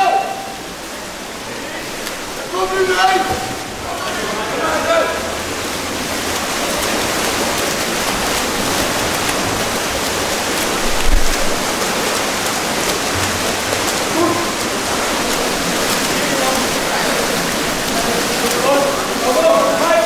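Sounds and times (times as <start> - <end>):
water splashing and churning: 0.0 - 20.0.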